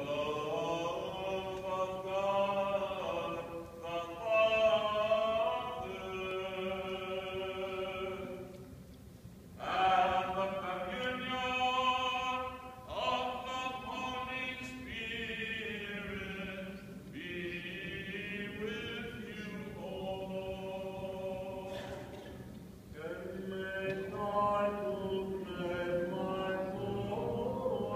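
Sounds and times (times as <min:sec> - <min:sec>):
choral chant with long notes: 0:00.0 - 0:08.7, 0:09.6 - 0:27.9.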